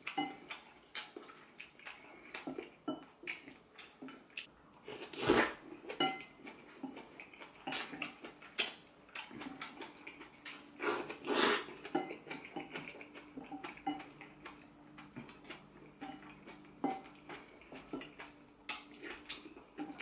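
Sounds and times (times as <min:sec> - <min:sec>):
wet mouth eating noises: 0:00.0 - 0:20.0
person slurping: 0:04.9 - 0:05.6, 0:10.8 - 0:11.8.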